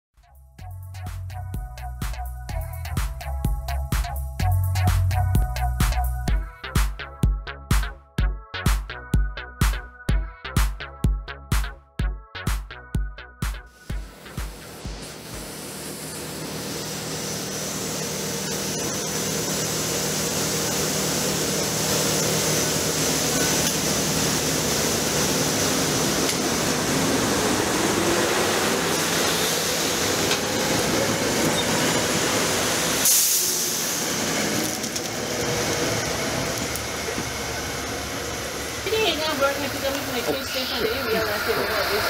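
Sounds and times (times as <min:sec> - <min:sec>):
train wheel and air noise: 0:13.7 - 0:42.0.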